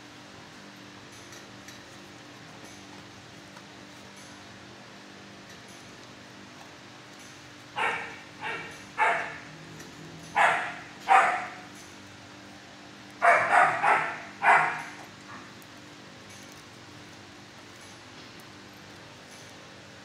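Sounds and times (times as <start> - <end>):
dog barking: 7.8 - 9.5, 10.3 - 11.7, 13.2 - 15.5.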